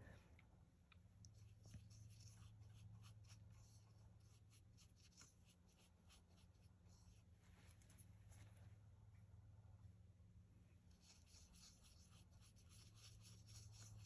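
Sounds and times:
low steady hum: 0.0s - 14.0s
paintbrush scrubbing on paper: 1.3s - 7.4s, 10.9s - 14.0s.

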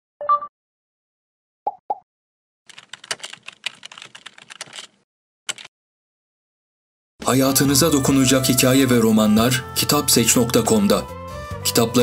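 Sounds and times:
keyboard typing clicks: 2.7s - 5.7s.

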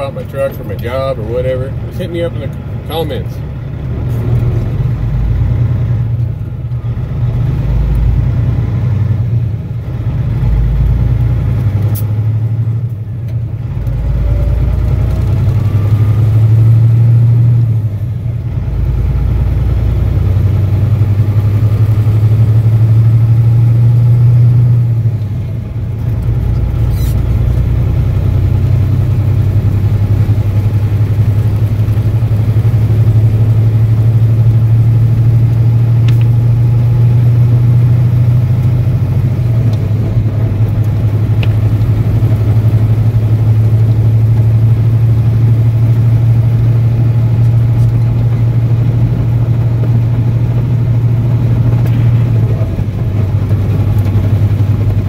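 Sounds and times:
truck diesel engine accelerating: 0.0s - 55.0s.

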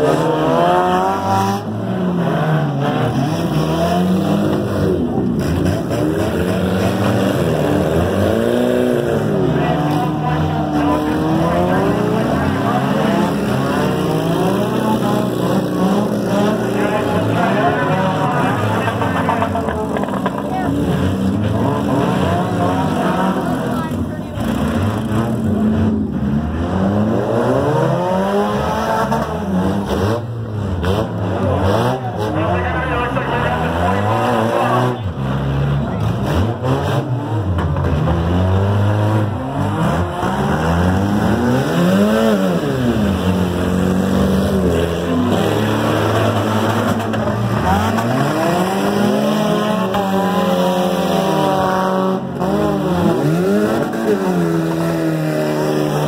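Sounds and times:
car engines revving: 0.0s - 56.0s.

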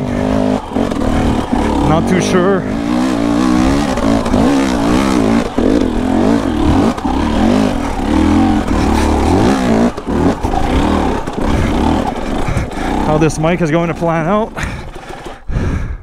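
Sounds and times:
dirt bike engine revving: 0.0s - 15.5s.

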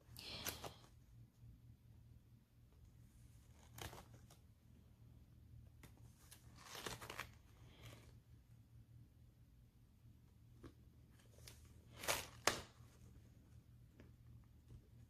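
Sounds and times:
paper pages turning: 3.2s - 4.5s, 5.8s - 8.2s, 11.1s - 13.1s.

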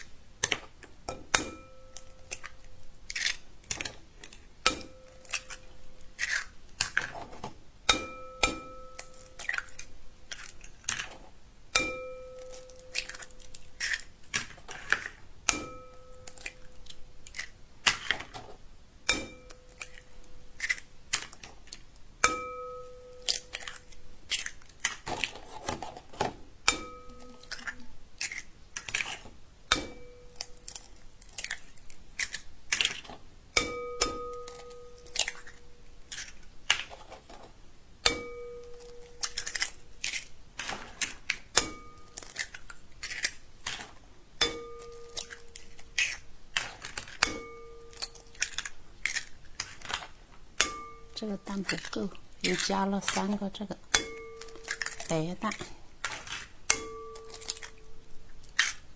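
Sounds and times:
eggs cracking on bowl rim: 0.0s - 7.2s, 7.9s - 11.2s, 11.8s - 18.4s, 19.1s - 25.3s, 26.6s - 37.0s, 38.0s - 58.9s
glass bowl ringing: 1.3s - 2.6s, 4.7s - 5.6s, 7.9s - 9.5s, 11.8s - 13.5s, 15.5s - 16.8s, 19.1s - 20.0s, 22.2s - 23.8s, 26.7s - 27.8s, 29.7s - 30.6s, 33.6s - 35.3s, 38.1s - 39.3s, 41.6s - 42.3s, 44.4s - 45.5s, 47.2s - 48.4s, 50.6s - 51.5s, 53.9s - 55.1s, 56.7s - 58.0s.

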